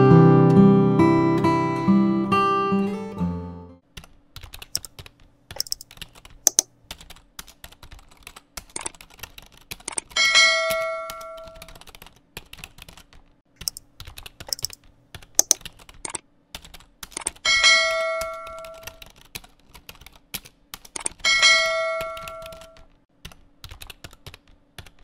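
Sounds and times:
acoustic guitar tune: 0.0s - 3.8s
keyboard key clicks: 4.0s - 7.1s, 13.6s - 17.4s
bell ding: 21.3s - 22.7s.

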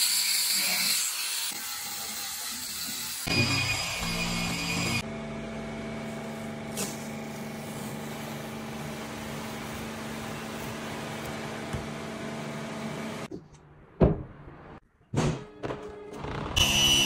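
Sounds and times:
mechanical hum with held tones: 3.3s - 13.3s.

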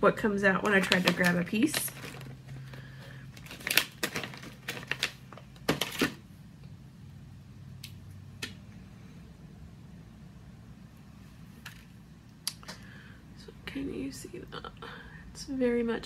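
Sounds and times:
plastic pouch crinkling: 0.5s - 6.2s.

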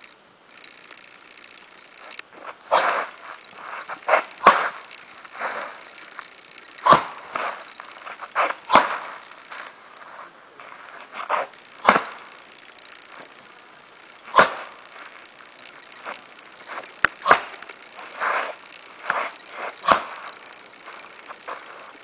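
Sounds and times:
foot stamps on dirt: 6.8s - 12.4s, 16.0s - 22.0s.

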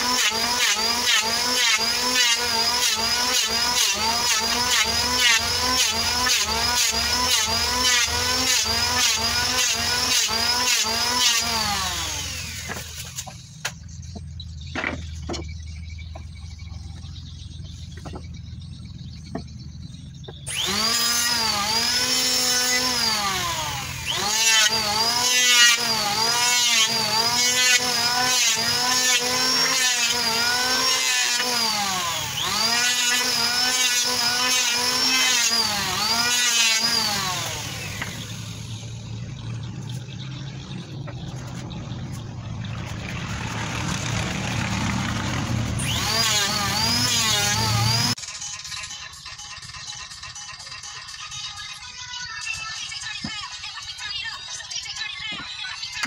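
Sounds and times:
electric planer whining through wood: 0.0s - 13.2s, 20.5s - 39.0s, 43.0s - 48.2s.

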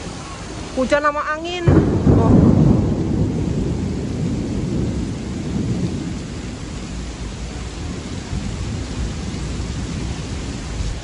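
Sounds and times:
heavy rain hissing: 0.0s - 11.0s
wind buffeting microphone: 1.5s - 11.0s.

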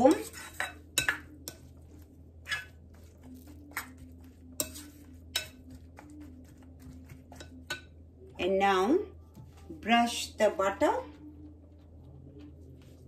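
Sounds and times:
spoon stirring eggs in bowl: 0.0s - 8.4s.

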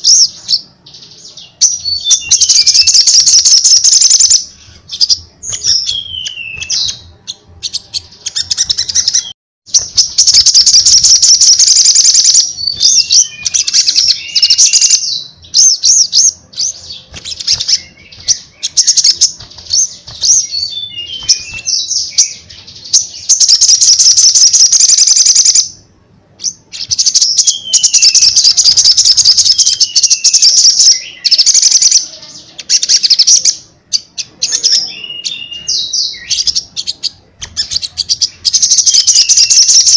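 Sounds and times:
bird chattering chirps: 1.4s - 25.7s, 26.4s - 39.9s.

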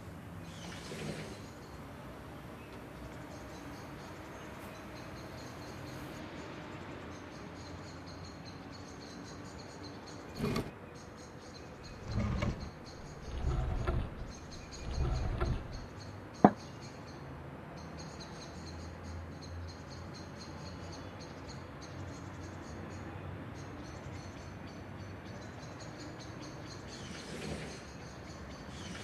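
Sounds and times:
chair scraping on wooden deck: 0.5s - 1.6s, 10.3s - 10.8s, 11.9s - 16.6s, 27.0s - 27.9s.

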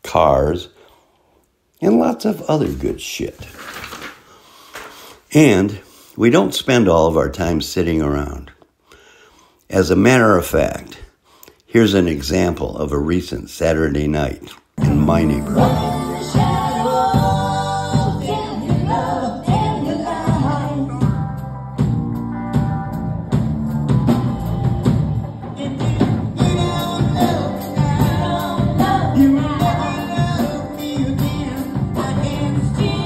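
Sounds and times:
person singing lead vocals: 14.8s - 21.4s, 24.1s - 33.0s
drum kit with cymbal beat: 14.8s - 33.0s
electric guitar: 20.4s - 33.0s.

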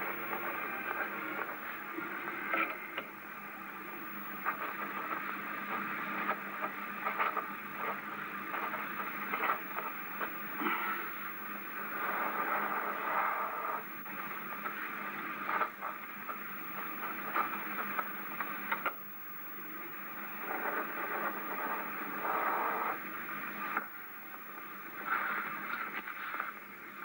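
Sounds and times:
film soundtrack hiss: 0.0s - 27.0s
surface clicks and crackles: 4.4s - 11.0s, 11.8s - 19.0s, 25.0s - 26.6s.

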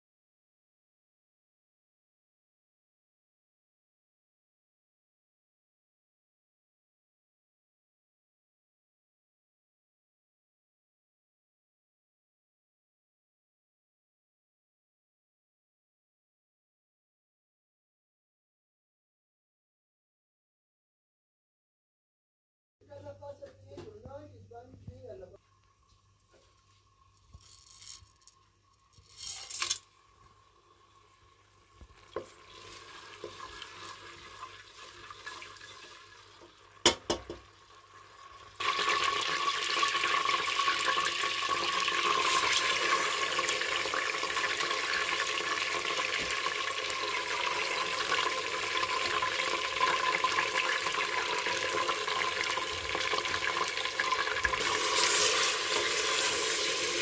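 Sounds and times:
hot oil sizzling loudly: 29.0s - 57.0s.

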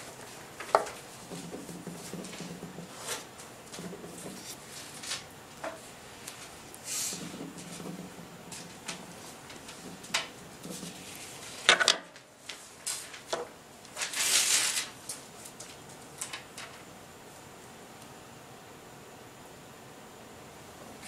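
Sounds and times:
faint hiss: 6.8s - 7.4s
sharp clicks and knocks: 7.2s - 11.0s.

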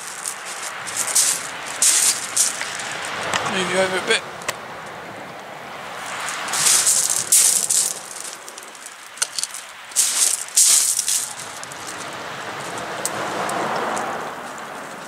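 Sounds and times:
rustling and scuffing handling: 0.0s - 3.1s, 6.1s - 12.0s.

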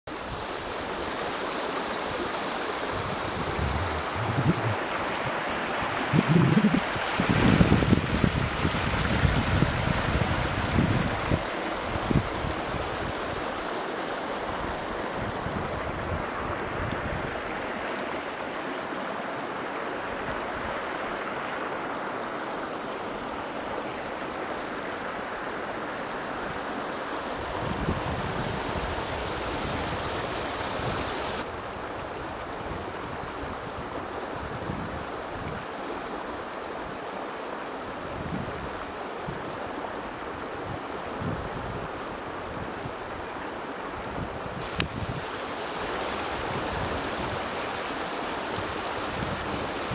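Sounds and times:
river rushing over rocks: 0.1s - 49.9s
wind buffeting microphone: 2.9s - 13.5s, 27.4s - 31.4s, 44.0s - 47.6s.

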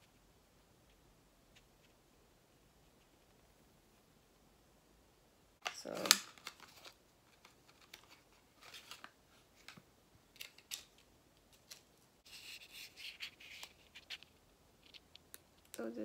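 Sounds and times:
plastic rubbing: 11.6s - 15.7s.

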